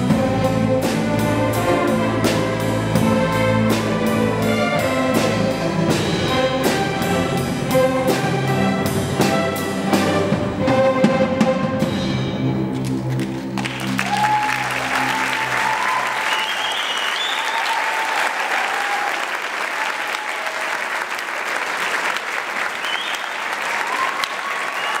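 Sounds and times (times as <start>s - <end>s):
orchestra chord: 0.0s - 16.2s
audience applause: 12.9s - 25.0s
audience cheering: 13.6s - 25.0s.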